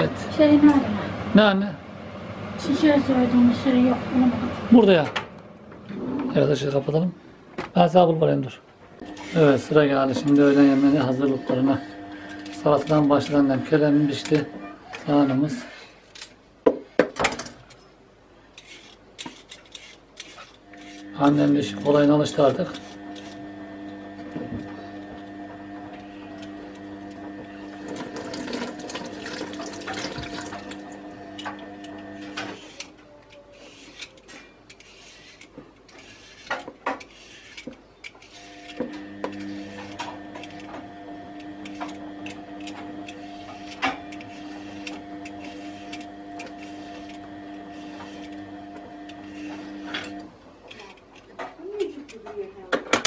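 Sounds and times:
kitchen appliance humming: 9.0s - 15.6s, 20.6s - 33.0s, 38.2s - 50.9s
knife cutting vegetables: 18.5s - 23.4s, 31.8s - 51.0s.

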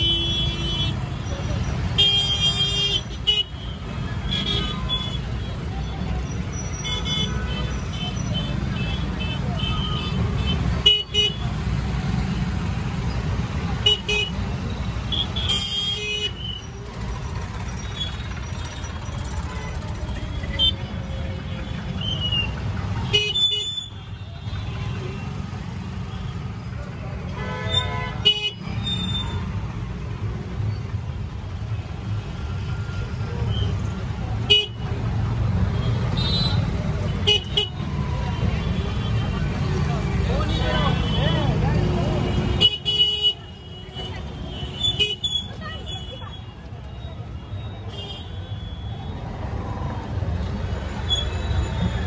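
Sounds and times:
low road rumble: 0.0s - 23.2s
traffic rumble: 0.0s - 52.0s
vehicle horns tooting: 27.3s - 29.4s, 35.7s - 39.4s, 40.1s - 49.3s.

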